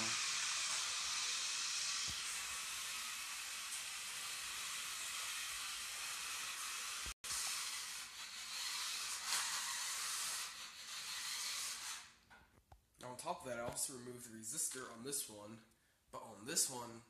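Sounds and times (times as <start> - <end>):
toy car motor whirring: 0.0 - 12.2.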